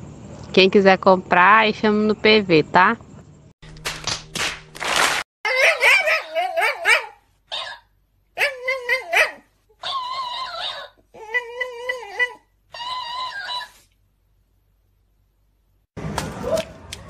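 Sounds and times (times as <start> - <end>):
dog whining and yowling: 5.5 - 13.8.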